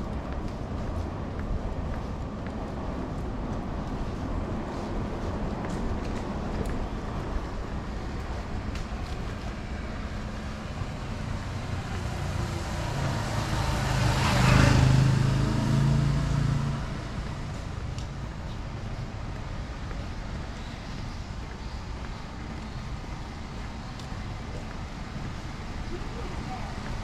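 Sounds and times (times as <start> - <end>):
car driving past on wet road: 12.0 - 17.7.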